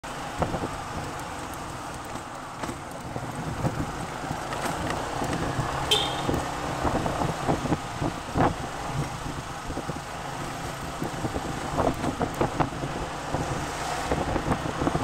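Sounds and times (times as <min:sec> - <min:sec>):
wind and road noise: 0:00.0 - 0:15.0
scooter engine running: 0:00.6 - 0:08.0.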